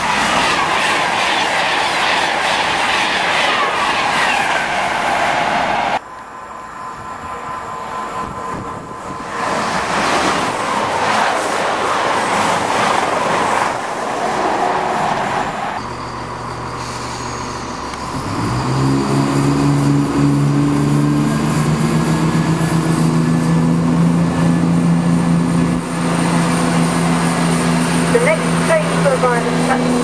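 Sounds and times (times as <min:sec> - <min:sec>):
train rushing past: 0:00.0 - 0:30.0
diesel train engine droning: 0:13.7 - 0:30.0.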